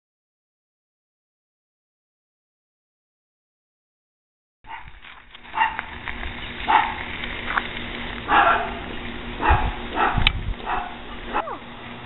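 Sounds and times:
dog barking: 4.7s - 4.9s, 5.5s - 5.9s, 6.7s - 7.0s, 8.3s - 11.7s.

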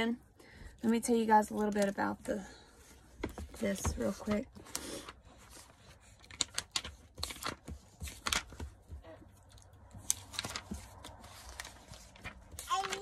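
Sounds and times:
packaging crinkling and rustling: 3.2s - 13.0s.

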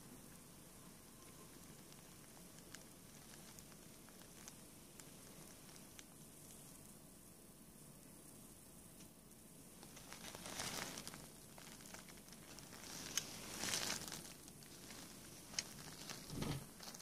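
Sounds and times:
wrapping sheet crinkling: 1.6s - 6.9s, 9.8s - 17.0s.

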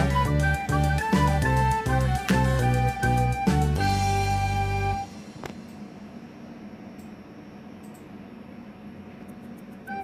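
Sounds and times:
instrumental background music: 0.0s - 5.5s.

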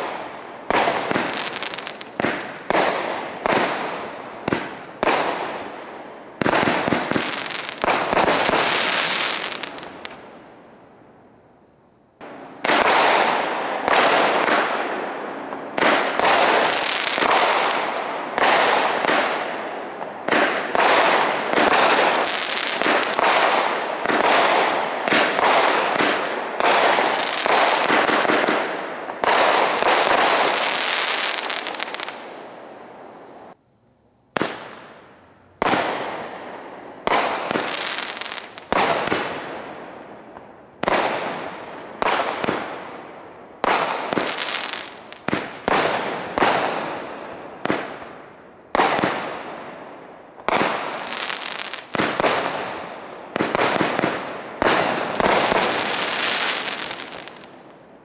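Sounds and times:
aerial fireworks bursting: 0.0s - 10.3s, 12.2s - 33.6s, 37.1s - 43.0s, 43.6s - 57.7s.

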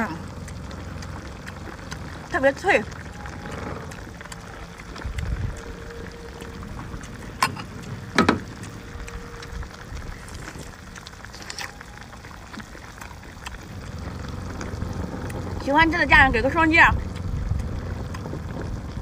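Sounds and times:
crunchy chewing: 0.0s - 19.0s
low rumble: 0.0s - 19.0s.

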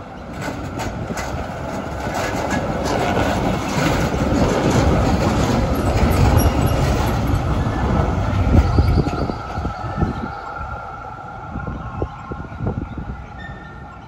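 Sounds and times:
tram wheels rumbling on rails: 0.0s - 14.0s
wheels clicking and clacking: 0.2s - 10.6s.

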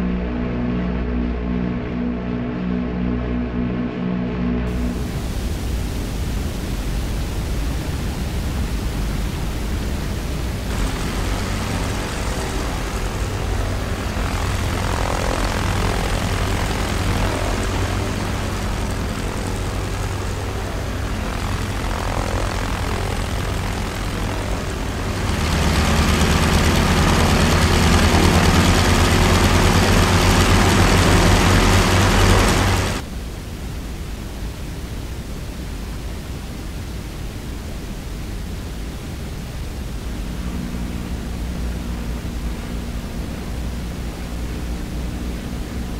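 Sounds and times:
propeller plane engines droning: 4.6s - 33.7s, 37.9s - 45.9s
wind and sea noise: 4.7s - 25.6s, 32.8s - 45.9s.

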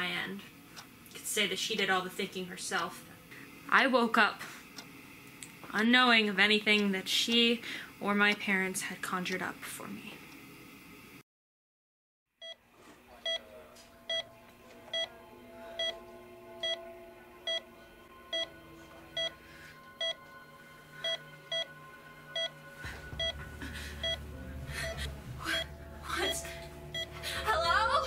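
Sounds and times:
heart monitor beeping: 12.4s - 12.6s, 13.2s - 13.4s, 14.0s - 15.1s, 15.8s - 16.0s, 16.6s - 27.4s
low rumble: 22.3s - 28.0s.

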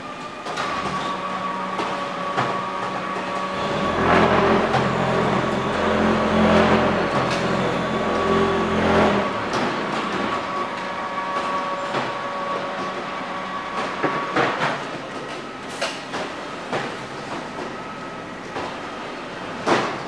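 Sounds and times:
motor humming: 1.8s - 10.4s.

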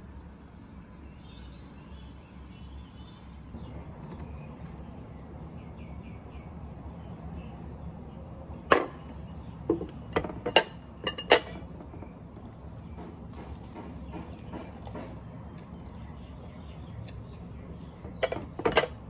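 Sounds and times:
glass clinks and knocks: 9.7s - 11.6s, 18.2s - 19.0s.

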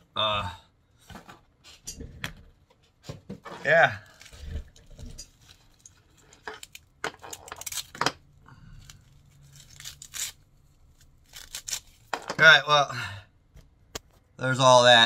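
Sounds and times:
fabric strap tearing and rustling: 4.0s - 8.0s, 8.8s - 12.1s.

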